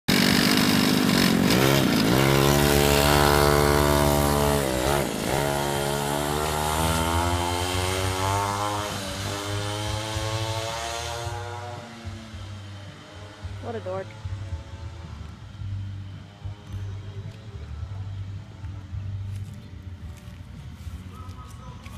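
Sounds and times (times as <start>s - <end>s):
small motorbike engine revving: 0.1s - 16.8s.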